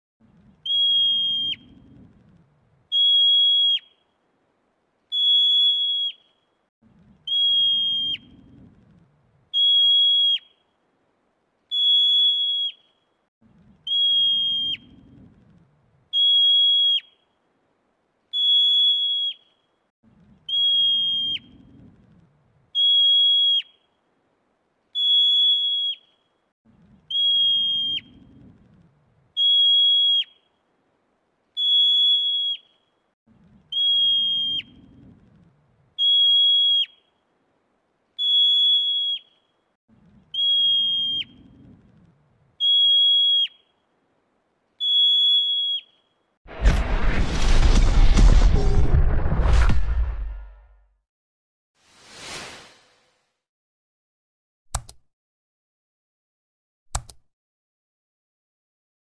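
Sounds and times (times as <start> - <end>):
marmot alarm whistle: 0.7 - 1.8, 2.9 - 4.0, 5.1 - 6.4, 7.3 - 8.4, 9.5 - 10.6, 11.7 - 13.0, 13.8 - 15.0, 16.1 - 17.2, 18.3 - 19.6, 20.5 - 21.6, 22.8 - 23.9, 25.0 - 26.3, 27.1 - 28.2, 29.4 - 30.5, 31.6 - 32.9, 33.7 - 34.9, 36.0 - 37.2, 38.2 - 39.5, 40.3 - 41.5, 42.6 - 43.8, 44.8 - 46.1.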